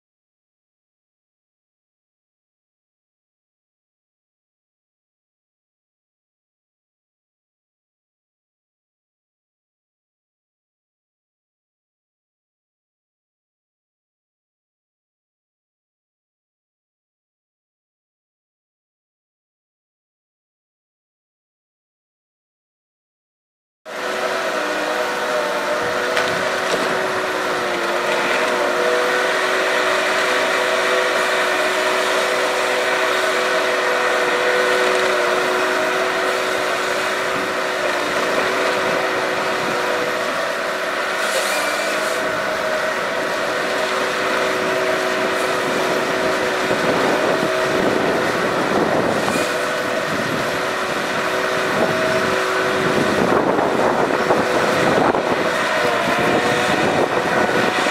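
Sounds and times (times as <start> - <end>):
harvester engine hum: 23.9 - 57.9
rasping log processing noise: 23.9 - 57.9.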